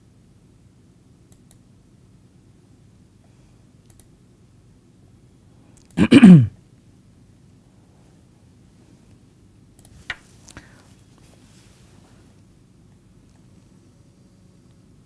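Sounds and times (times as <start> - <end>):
computer mouse clicks: 1.3 - 1.6, 3.8 - 4.2, 9.8 - 10.2
man clearing his throat: 6.0 - 6.6.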